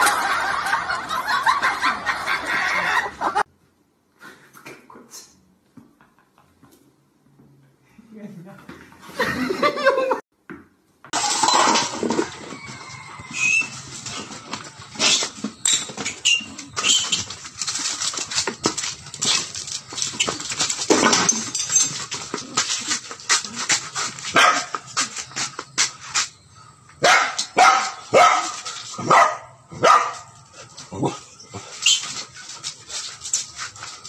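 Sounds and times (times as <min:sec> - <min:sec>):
small dog barking: 0:24.3 - 0:24.7, 0:27.0 - 0:30.3.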